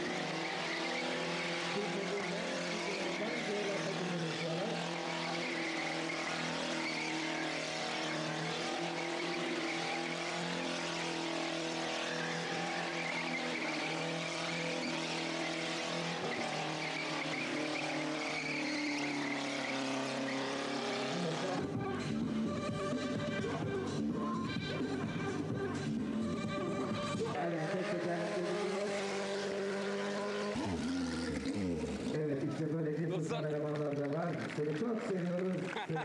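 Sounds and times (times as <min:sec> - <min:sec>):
tyres squealing on tarmac: 0:00.0 - 0:21.8
car engine at high revs: 0:00.0 - 0:36.0.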